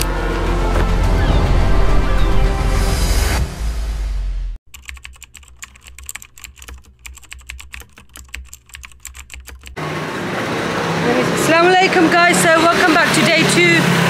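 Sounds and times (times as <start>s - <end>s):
intro music: 0.0s - 4.6s
computer keyboard typing: 4.7s - 9.8s.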